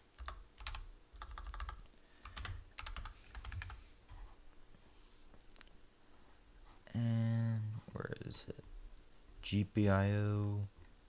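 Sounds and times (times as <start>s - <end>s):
computer keyboard typing: 0.2s - 3.8s.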